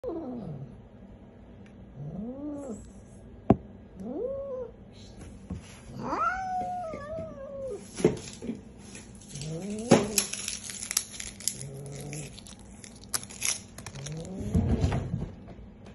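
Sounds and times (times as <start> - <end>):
cat yowling: 6.0 - 7.8.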